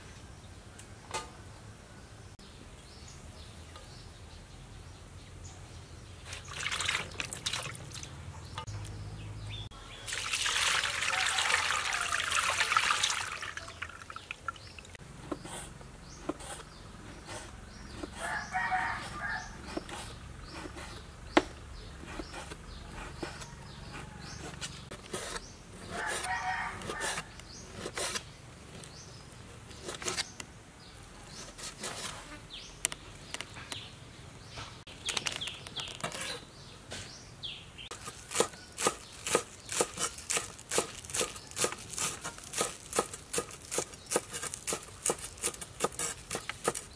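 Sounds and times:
rooster crowing: 0:10.8 - 0:12.6, 0:18.2 - 0:19.6, 0:25.9 - 0:27.2
knife cutting on wooden board: 0:15.2 - 0:28.2, 0:38.0 - 0:46.9
knife chopping green onions: 0:37.9 - 0:46.9.

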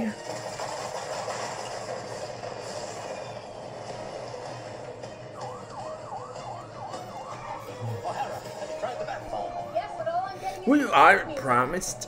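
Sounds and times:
siren-like wail: 0:04.9 - 0:09.6.

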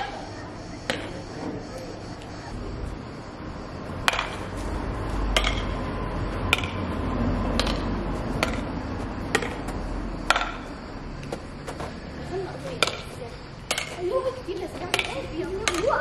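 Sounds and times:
rackets hitting shuttlecock: 0:00.9 - 0:01.2, 0:04.0 - 0:04.5, 0:05.3 - 0:05.8, 0:06.4 - 0:10.7, 0:12.8 - 0:14.0, 0:14.8 - 0:16.0.

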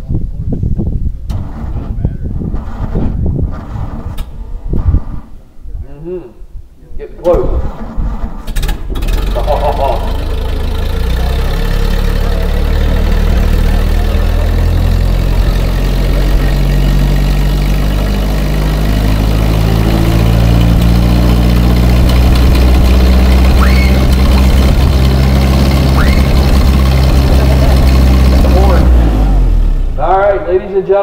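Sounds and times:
tractor engine idling: 0:07.3 - 0:31.0.

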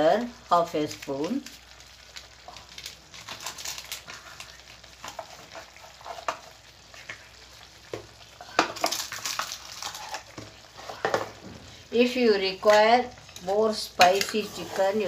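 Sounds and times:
chicken frying in a pan: 0:00.0 - 0:15.0
metal spoon scraping a pan: 0:05.0 - 0:07.2, 0:09.4 - 0:11.3, 0:13.2 - 0:15.0.

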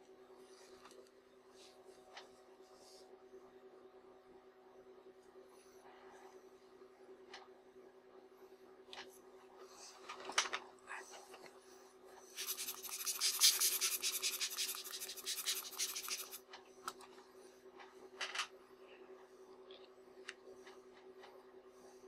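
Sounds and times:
scratchy rubbing on glass lens: 0:12.4 - 0:16.4.

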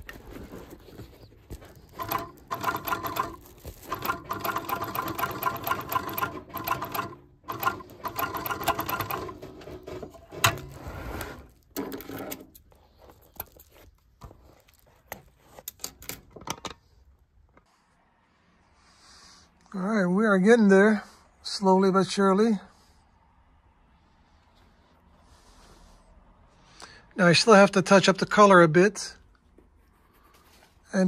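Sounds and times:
sewing machine stitching: 0:01.4 - 0:12.6.

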